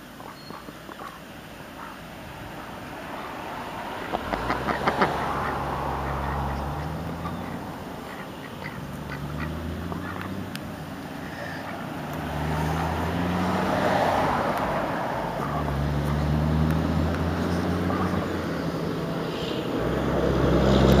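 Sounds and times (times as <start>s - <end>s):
ducks quacking: 0.2s - 10.4s, 15.4s - 16.3s, 17.5s - 18.5s.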